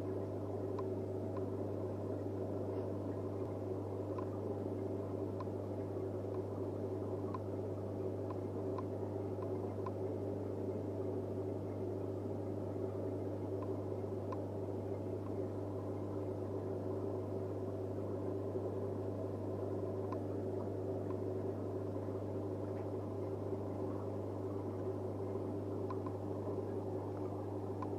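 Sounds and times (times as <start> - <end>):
aquarium pump hum: 0.0 - 27.9
faint ticks: 0.7 - 1.6, 5.2 - 6.6, 7.2 - 7.5, 8.2 - 10.1, 13.4 - 16.2, 19.8 - 21.5, 25.2 - 27.9.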